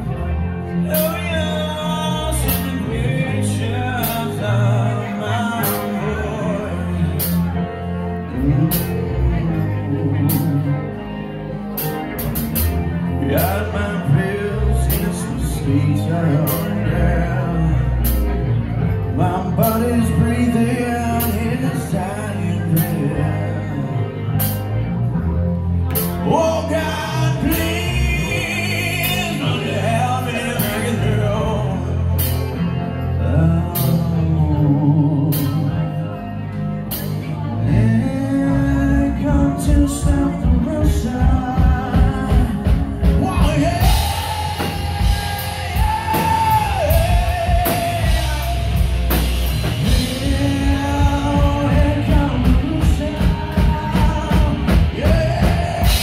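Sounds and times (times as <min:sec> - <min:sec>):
drum kit: 0:00.0 - 0:11.1, 0:11.7 - 0:23.6, 0:24.3 - 0:24.8, 0:25.8 - 0:32.8, 0:33.4 - 0:35.8, 0:36.9 - 0:56.0
bass guitar: 0:00.0 - 0:56.0
male lead vocals: 0:00.0 - 0:56.0.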